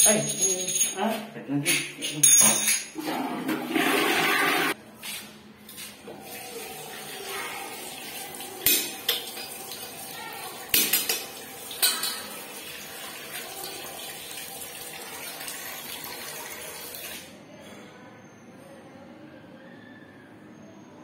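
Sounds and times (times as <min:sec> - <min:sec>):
metal object clinking on basin: 0:00.0 - 0:01.2, 0:02.0 - 0:03.0, 0:10.8 - 0:12.4
tap water running into basin: 0:06.0 - 0:17.3.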